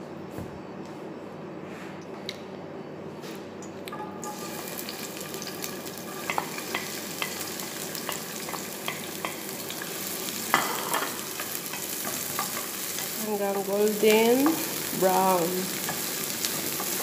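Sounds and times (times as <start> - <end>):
onions sizzling in hot oil: 4.2 - 17.0.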